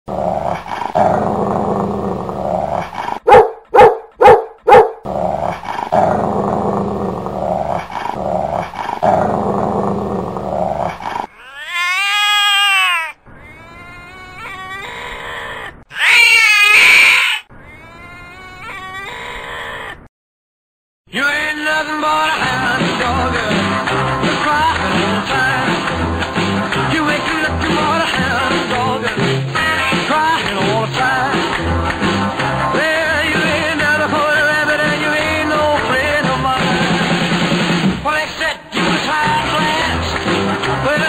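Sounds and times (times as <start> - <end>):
dog growling and snarling: 0.1 - 3.3, 5.0 - 11.3
dog barking: 3.2 - 5.0.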